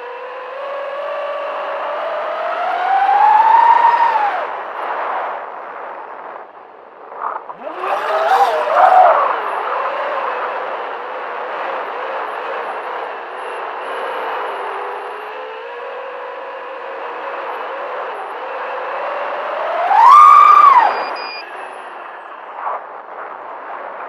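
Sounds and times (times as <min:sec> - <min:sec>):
quadcopter motors whining: 0:00.0 - 0:04.6, 0:07.5 - 0:22.0
rush of noise: 0:01.5 - 0:24.0.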